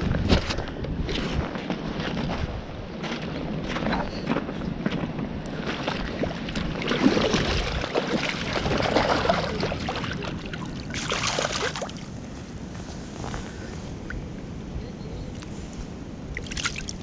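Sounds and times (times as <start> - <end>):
creek water splashing: 5.5 - 12.3, 16.3 - 17.0.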